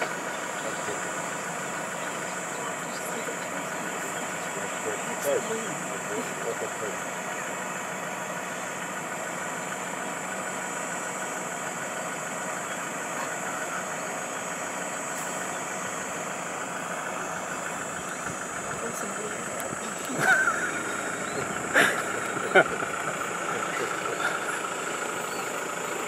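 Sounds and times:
vehicle engine idling: 0.0 - 26.0.

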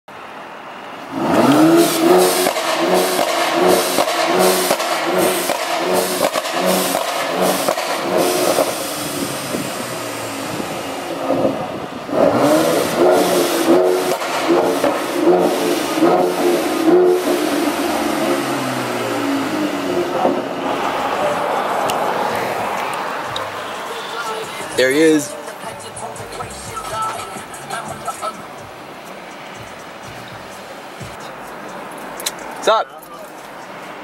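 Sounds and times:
car engine revving: 1.0 - 32.8
exhaust crackles and pops: 1.4 - 10.0.

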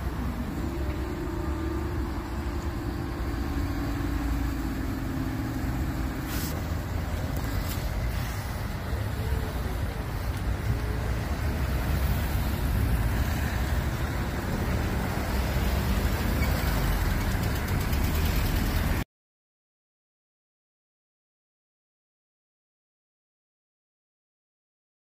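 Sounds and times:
road traffic rumbling: 0.0 - 19.0.

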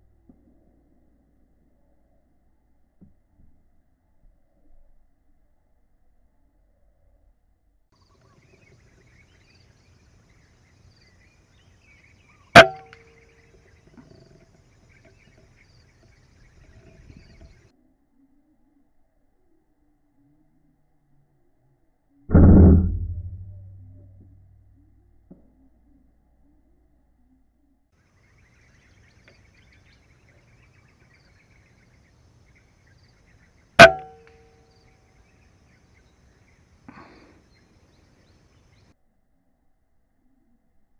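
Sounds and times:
faint bird chirps: 8.0 - 22.2, 25.6 - 40.9
brief metallic ring: 12.6 - 13.3, 33.8 - 34.6
faint chirps: 25.6 - 39.6.

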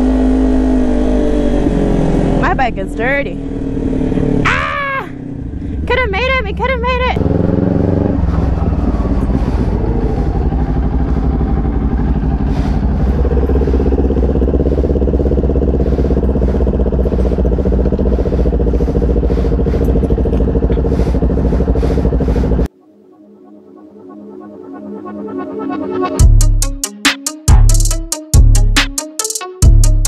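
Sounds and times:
motorcycle engine rumbling: 0.0 - 22.7.

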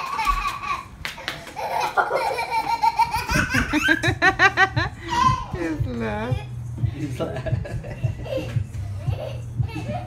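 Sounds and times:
high-pitched excited laughter: 0.0 - 5.8.

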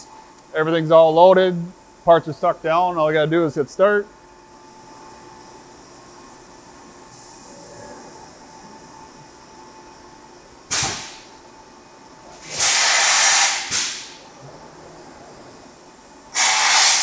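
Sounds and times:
faint machine hum: 0.0 - 17.0
compressed air hiss: 12.4 - 14.2, 16.3 - 17.0.

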